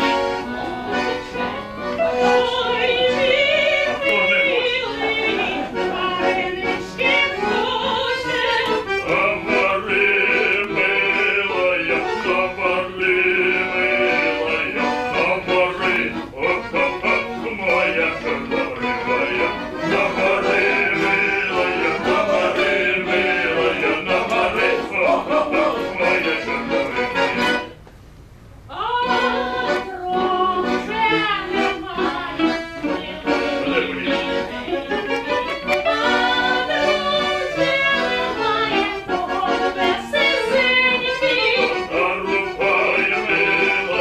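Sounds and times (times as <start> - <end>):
accordion: 0.0 - 27.9, 28.7 - 44.0
man singing folk song: 9.0 - 27.7, 41.8 - 44.0.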